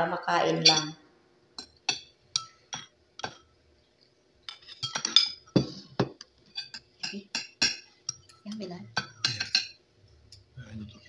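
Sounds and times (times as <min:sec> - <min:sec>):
cutlery clinking on ceramic plate: 0:00.6 - 0:01.0, 0:04.4 - 0:10.5.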